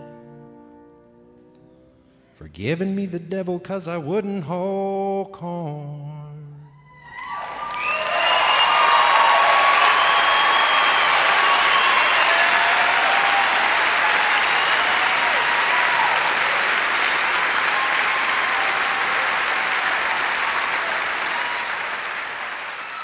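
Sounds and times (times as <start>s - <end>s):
audience applauding: 7.0s - 23.0s.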